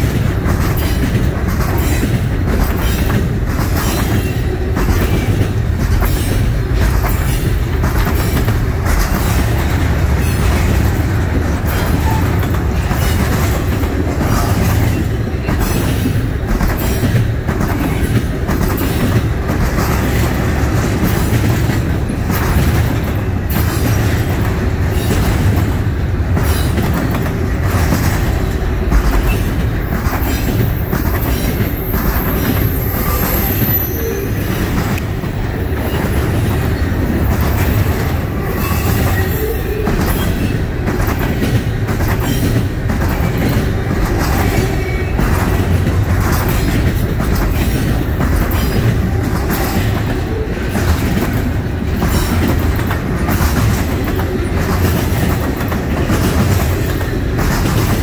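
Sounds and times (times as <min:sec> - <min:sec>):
clicking over rail joints: 0:00.0 - 0:58.0
train wheels rumbling on rail: 0:00.0 - 0:58.0
faint high wheel squeal: 0:31.3 - 0:34.9.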